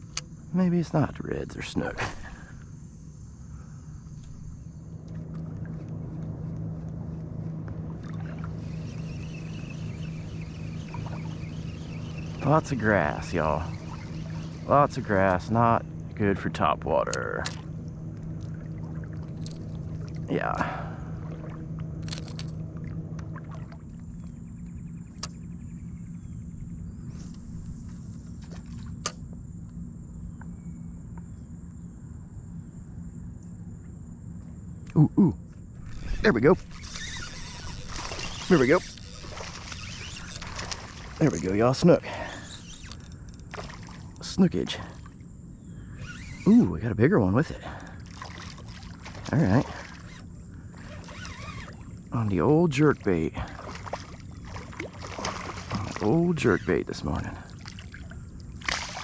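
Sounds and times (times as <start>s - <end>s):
low even rumble: 0.0s - 34.8s
distant motor humming: 0.0s - 59.0s
high insect drone: 0.0s - 59.0s
faint ticks: 23.9s - 25.5s, 36.7s - 45.3s.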